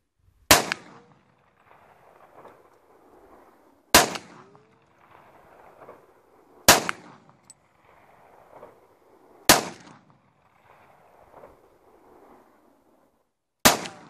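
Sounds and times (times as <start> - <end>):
pistol shots: 0.5 - 2.5, 3.9 - 6.0, 6.7 - 7.4, 9.5 - 10.1, 13.6 - 14.0.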